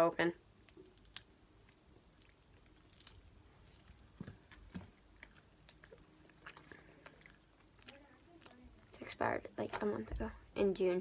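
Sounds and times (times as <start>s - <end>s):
biting and chewing meat stick: 0.6s - 8.9s.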